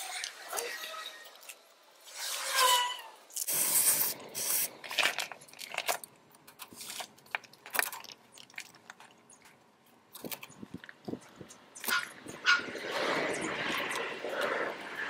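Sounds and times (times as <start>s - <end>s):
hiss: 3.4s - 4.8s.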